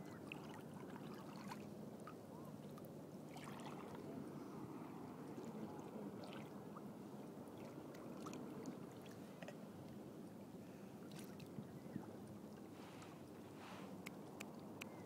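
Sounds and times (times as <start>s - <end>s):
water lapping against hull: 0.0s - 15.0s
small splashes and drips: 0.1s - 4.0s, 7.6s - 9.6s.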